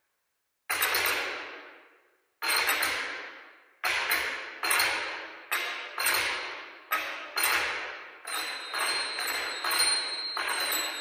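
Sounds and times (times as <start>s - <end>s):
high steady ringing tone: 8.3s - 11.0s
sharp ringing percussion strikes: 8.3s - 11.0s.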